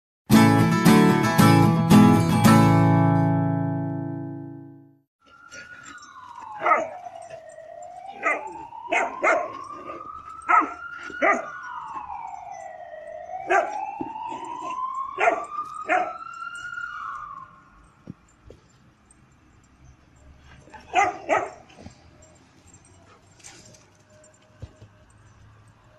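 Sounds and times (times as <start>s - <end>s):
emergency vehicle siren wailing: 5.2s - 25.9s
dog barking: 6.6s - 7.0s, 8.1s - 11.5s, 13.5s - 13.8s, 15.2s - 16.2s, 20.6s - 22.0s.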